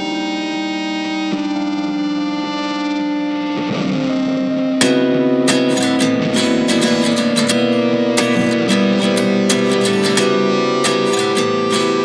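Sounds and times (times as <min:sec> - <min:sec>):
guitar background music: 0:00.0 - 0:12.0.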